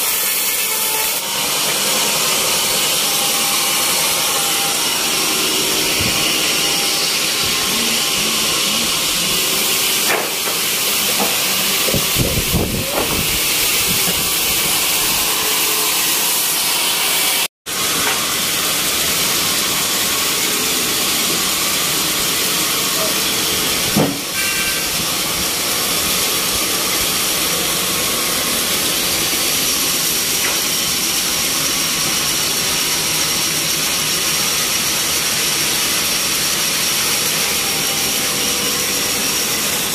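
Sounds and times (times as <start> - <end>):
sawmill machinery hissing: 0.0 - 39.9
thump: 24.0 - 24.2.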